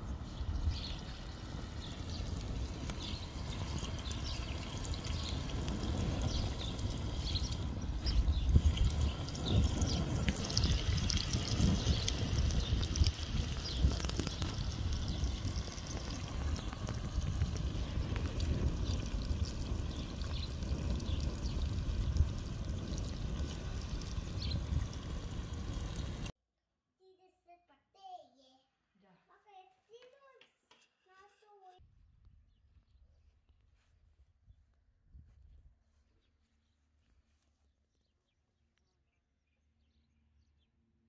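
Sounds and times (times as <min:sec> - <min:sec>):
low rumble: 0:00.0 - 0:26.3
wood fire crackling: 0:00.0 - 0:26.3.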